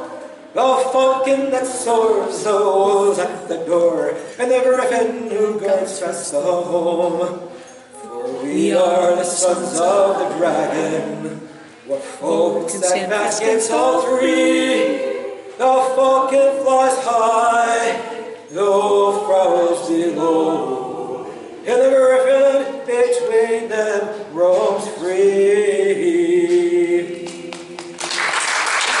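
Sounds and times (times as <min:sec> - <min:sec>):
man singing unaccompanied: 0:00.0 - 0:07.6, 0:08.2 - 0:28.0
applause: 0:27.5 - 0:29.0.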